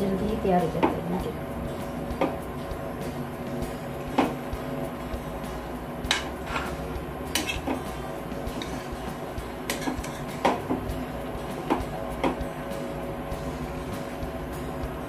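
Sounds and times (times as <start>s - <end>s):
spatula scraping food in pan: 6.1s - 6.8s, 7.4s - 7.7s, 8.4s - 10.5s.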